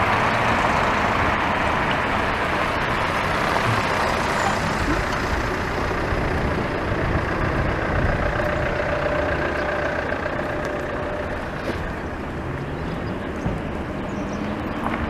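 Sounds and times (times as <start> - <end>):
road traffic passing: 0.0 - 15.0.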